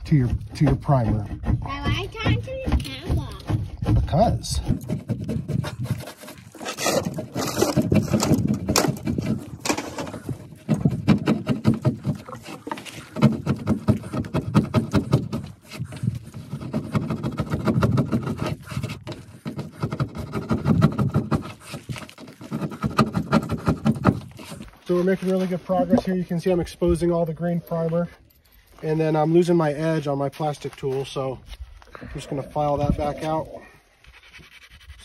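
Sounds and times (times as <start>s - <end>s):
plastic tool scraping metal: 1.4s - 26.0s.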